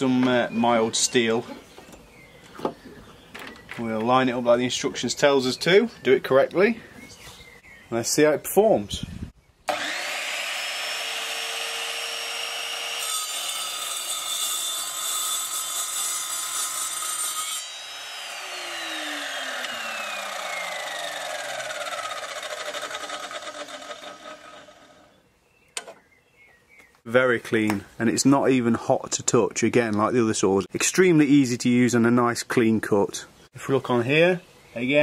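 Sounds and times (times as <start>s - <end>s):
saw cutting steel: 9.7s - 25.1s
chop saw whining: 9.7s - 25.2s.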